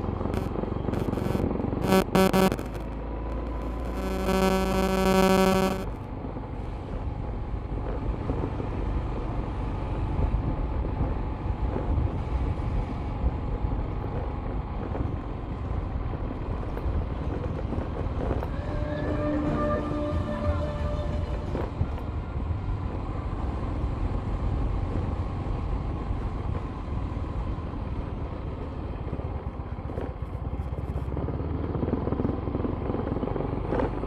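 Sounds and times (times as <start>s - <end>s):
vehicle engine and road rumble: 0.0s - 34.0s
held pitched tone: 0.4s - 6.0s.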